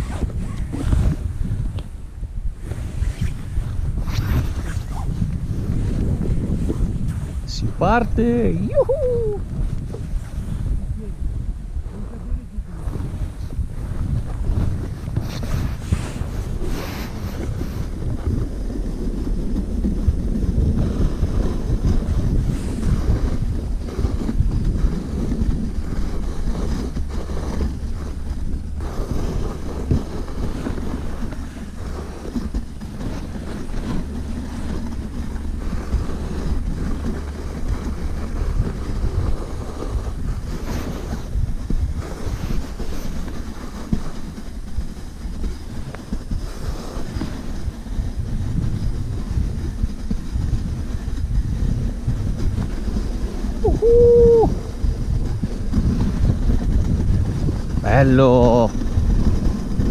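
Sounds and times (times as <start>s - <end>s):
sled knocking and rattling: 0.0s - 59.9s
sled runners scraping on snow: 0.0s - 59.9s
wind buffeting microphone: 0.0s - 59.9s.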